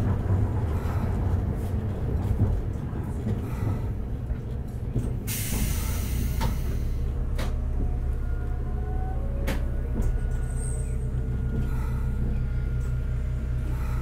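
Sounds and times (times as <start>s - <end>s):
sharp clicks from wheels and track: 0.0s - 8.0s, 9.4s - 12.1s
tram rumbling: 0.0s - 14.0s.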